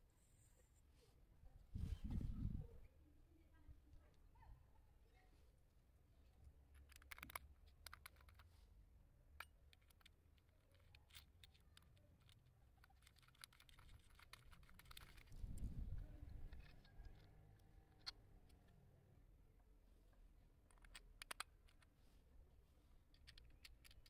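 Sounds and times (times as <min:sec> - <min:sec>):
small plastic and metal clicks: 0:06.6 - 0:08.6, 0:09.2 - 0:18.9, 0:20.5 - 0:22.0, 0:23.0 - 0:24.0.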